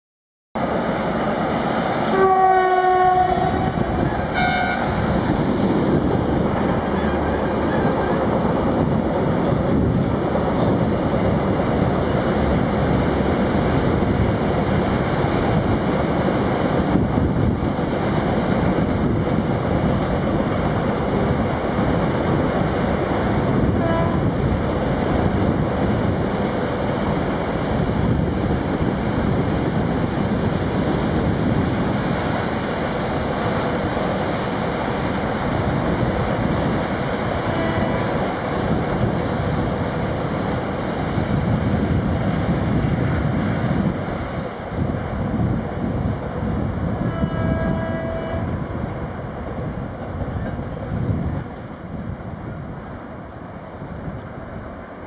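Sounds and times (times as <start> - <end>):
freight train rumbling on rails: 0.6 - 55.0
locomotive horn: 2.1 - 5.0, 23.7 - 24.3, 37.4 - 38.1, 47.0 - 48.7.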